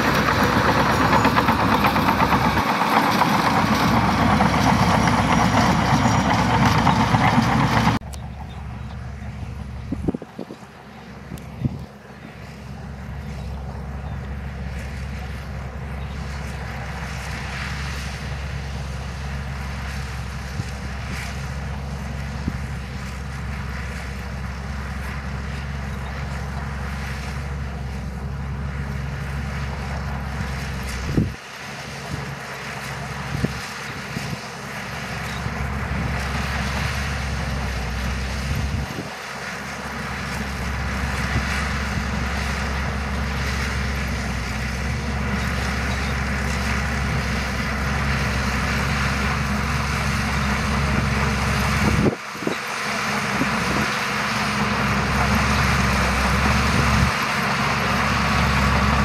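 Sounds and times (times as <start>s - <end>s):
track rattle: 0.0s - 10.2s
bulldozer diesel engine: 0.0s - 59.0s.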